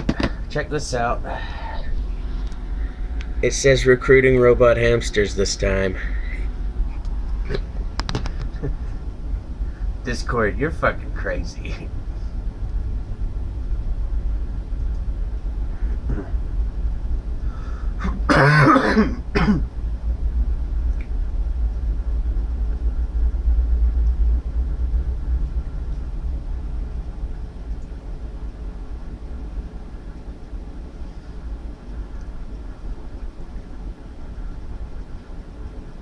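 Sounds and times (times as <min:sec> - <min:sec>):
steady low rumble: 0:00.0 - 0:36.0
man clearing throat: 0:18.0 - 0:19.6.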